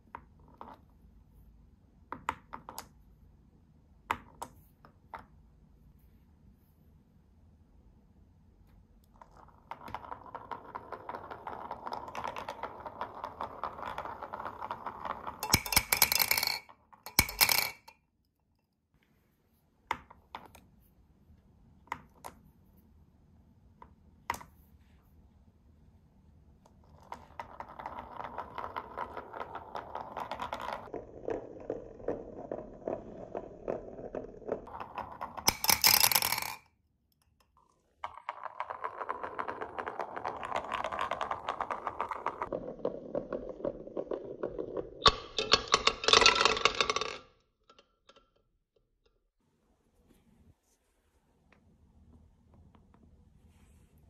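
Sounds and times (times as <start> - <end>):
marbles rolling on wooden track: 9.1 - 17.9, 26.8 - 36.7, 37.6 - 48.4
marbles clattering into plastic cup: 9.2 - 17.9, 27.0 - 36.6, 37.8 - 48.3.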